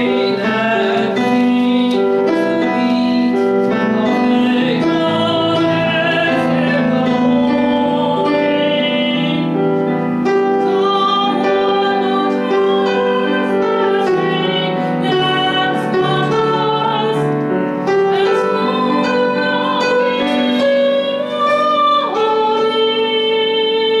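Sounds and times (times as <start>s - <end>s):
piano accompaniment: 0.0s - 24.0s
woman singing: 0.0s - 24.0s.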